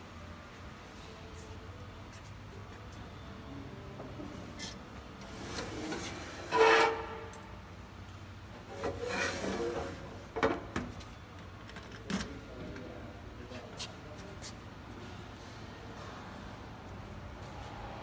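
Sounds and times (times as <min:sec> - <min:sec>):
drawer sliding with scraping squeal: 0:05.3 - 0:07.3, 0:08.7 - 0:10.1.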